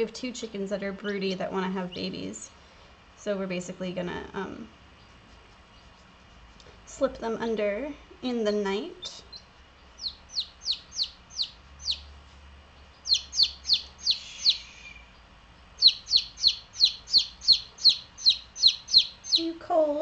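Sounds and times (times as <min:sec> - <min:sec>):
baby chick peeping: 0:00.4 - 0:02.5, 0:04.9 - 0:07.1, 0:08.8 - 0:20.0.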